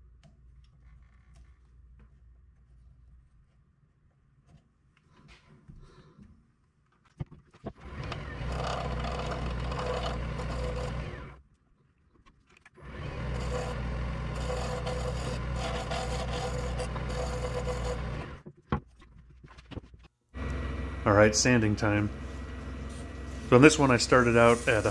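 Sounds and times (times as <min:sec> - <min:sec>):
tool scraping spinning wood: 0:07.6 - 0:11.4, 0:12.8 - 0:18.4, 0:20.4 - 0:24.9
lathe motor hum: 0:07.8 - 0:11.4, 0:12.8 - 0:18.4, 0:20.4 - 0:24.9.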